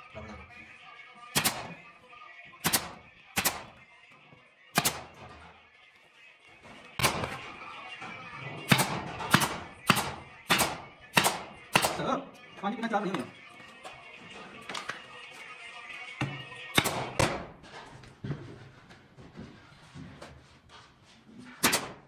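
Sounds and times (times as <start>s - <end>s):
nail gun firing: 1.3s - 1.8s, 2.6s - 3.7s, 4.8s - 5.2s, 7.0s - 7.4s, 8.7s - 12.1s, 16.7s - 17.4s, 21.6s - 22.0s.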